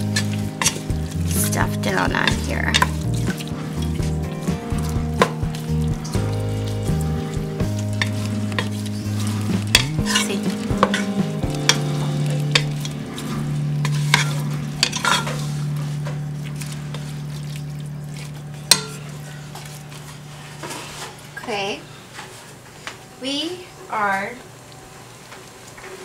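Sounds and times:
spatula scraping a pot: 0.0s - 16.1s
meat sizzling: 0.0s - 21.4s
spatula knocking on pot: 9.7s - 12.9s.

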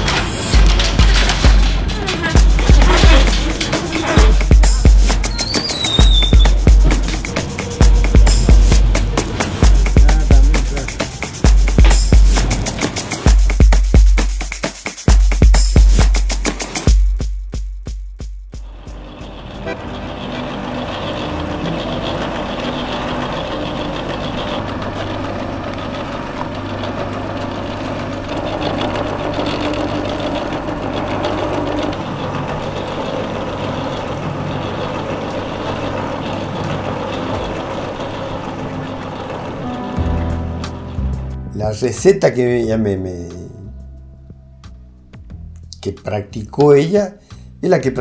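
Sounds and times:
dough mixer running: 18.7s - 41.1s.

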